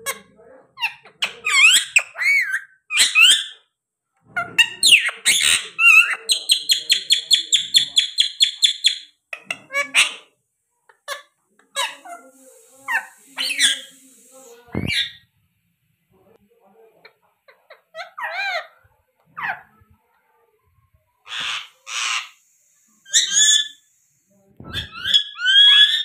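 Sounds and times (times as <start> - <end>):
parakeets whistling and squawking: 11.8 - 15.2, 21.3 - 22.4, 23.0 - 23.8, 24.7 - 26.0.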